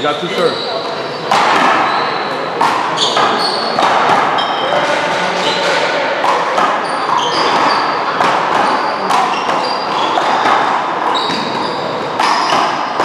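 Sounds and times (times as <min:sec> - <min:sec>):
sneakers squeaking on court: 0:00.0 - 0:13.0
rubber ball smacking: 0:01.3 - 0:13.0.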